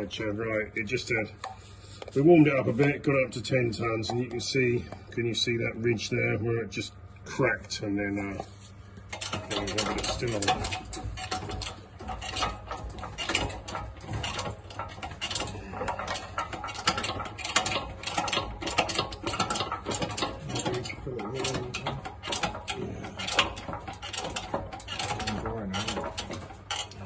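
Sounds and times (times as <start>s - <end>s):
mechanical clicking and rattling: 8.2s - 27.0s.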